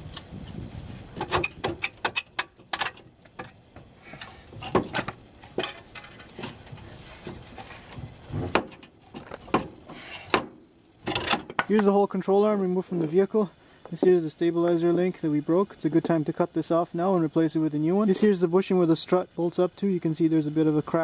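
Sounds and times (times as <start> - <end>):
metal clanks and knocks: 1.2 - 11.7.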